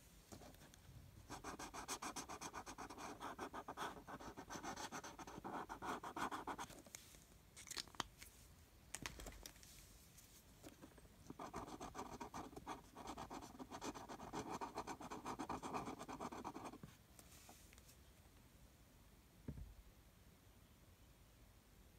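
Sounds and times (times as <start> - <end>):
marker scribbling on paper: 1.3 - 6.7, 11.3 - 16.8.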